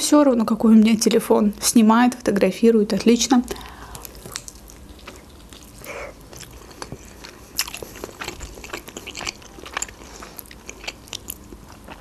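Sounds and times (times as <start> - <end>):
chewing with wet clicks: 3.5 - 12.0
biting into fried dumpling: 4.1 - 12.0.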